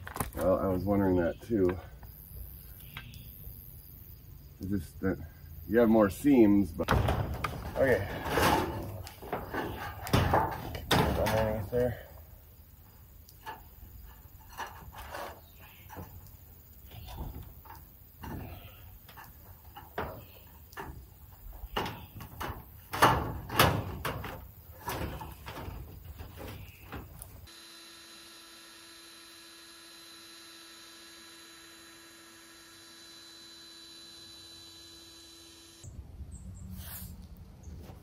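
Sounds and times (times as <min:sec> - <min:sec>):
sheet metal scraping on roof: 0:06.9 - 0:12.0, 0:13.4 - 0:27.5.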